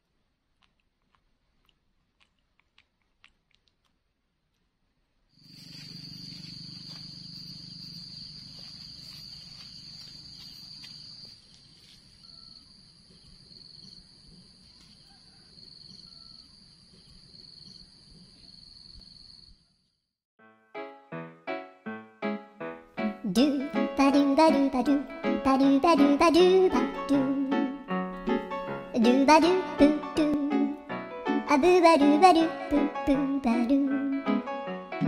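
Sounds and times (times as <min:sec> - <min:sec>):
insects droning: 0:05.4 - 0:20.0.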